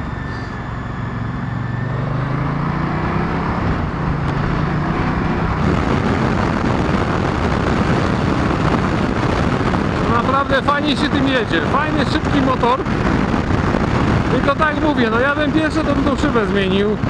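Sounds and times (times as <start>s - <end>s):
motorcycle engine running: 0.0s - 17.0s
wind and road rush: 0.0s - 17.0s.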